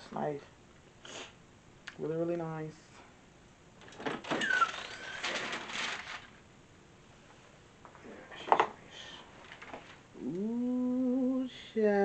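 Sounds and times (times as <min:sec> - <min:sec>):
handle squeak: 0:04.3 - 0:05.1.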